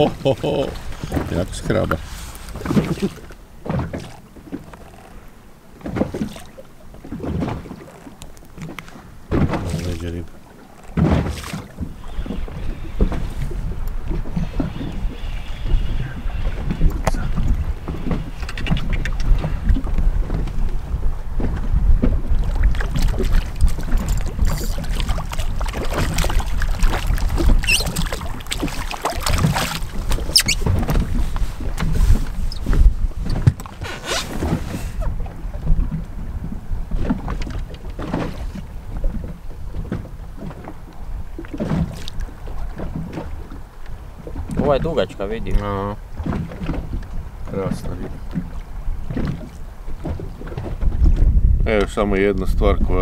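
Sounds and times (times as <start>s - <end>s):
water noise: 0.0s - 53.0s
wind on microphone: 11.0s - 53.0s
brief high squeaks: 24.5s - 24.8s, 27.6s - 28.0s, 30.2s - 30.7s, 32.4s - 32.7s.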